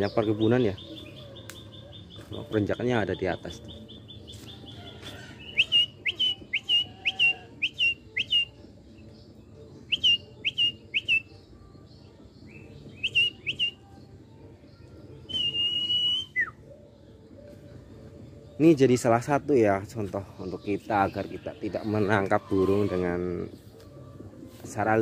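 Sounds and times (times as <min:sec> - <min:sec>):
man whistling bird calls: 0:05.4 - 0:08.6, 0:09.9 - 0:11.4, 0:12.9 - 0:13.9, 0:15.2 - 0:16.6.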